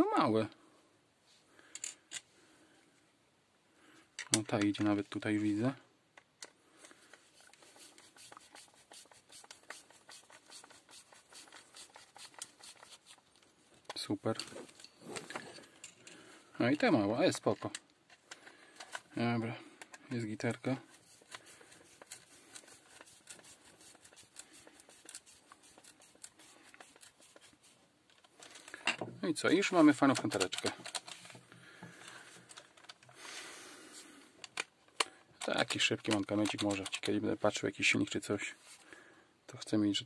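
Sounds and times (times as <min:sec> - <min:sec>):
screwdriver clicking and scraping: 0:06.2 - 0:16.2, 0:17.4 - 0:19.1, 0:20.9 - 0:29.0, 0:29.6 - 0:33.2, 0:34.4 - 0:37.3
screwdriver clicking into plastic: 0:30.0 - 0:31.3, 0:34.4 - 0:37.1.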